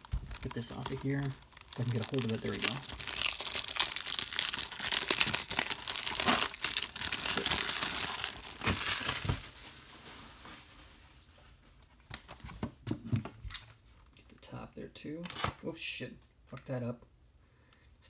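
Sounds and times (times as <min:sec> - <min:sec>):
plastic shrink wrap crinkling: 0:00.0 - 0:11.3.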